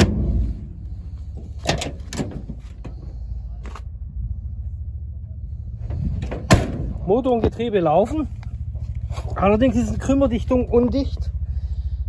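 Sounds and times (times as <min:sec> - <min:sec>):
engine idling: 0:00.0 - 0:12.0
cab door clicks and knocks: 0:01.5 - 0:03.0.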